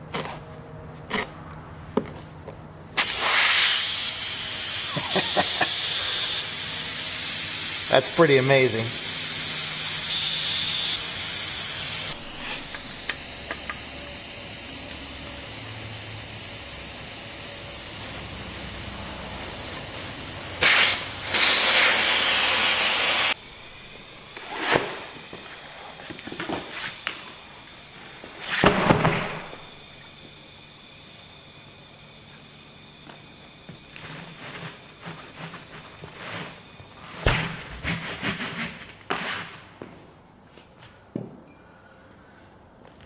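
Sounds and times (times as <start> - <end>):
loud rush of air from valve: 3.0 - 23.4
air hissing from tire puncture: 3.0 - 37.3.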